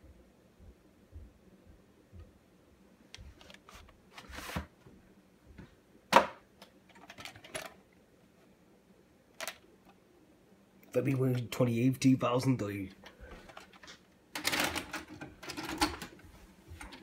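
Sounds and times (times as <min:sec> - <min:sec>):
plastic clicks and rustles: 0:06.6 - 0:07.8, 0:09.3 - 0:10.0, 0:13.0 - 0:16.2.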